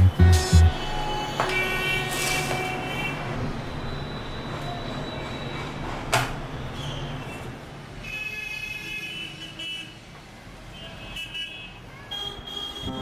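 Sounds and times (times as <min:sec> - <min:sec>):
vehicle horns honking: 0:00.0 - 0:03.4, 0:08.0 - 0:10.0, 0:10.7 - 0:13.0
street traffic rumbling: 0:00.0 - 0:13.0.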